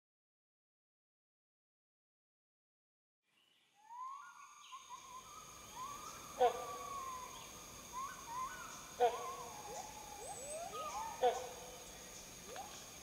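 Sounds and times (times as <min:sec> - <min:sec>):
birds whistling calls: 0:03.8 - 0:13.0
high insect drone: 0:03.8 - 0:13.0.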